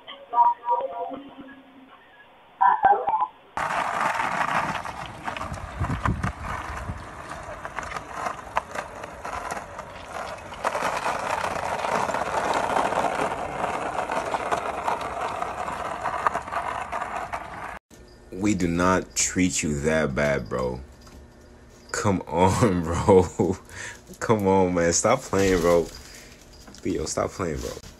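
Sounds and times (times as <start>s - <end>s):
skateboard wheels rolling: 3.6s - 17.8s, 22.4s - 27.9s.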